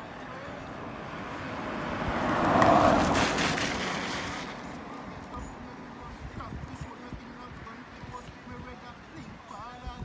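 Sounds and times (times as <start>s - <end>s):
vehicle driving past: 0.1s - 4.9s.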